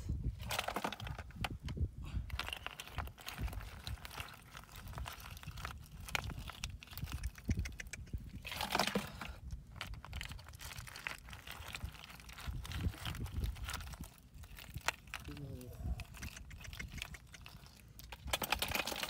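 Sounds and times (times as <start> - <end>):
snail shells clattering: 0.4 - 15.3, 15.9 - 19.0
wet mud squelching: 15.9 - 19.0.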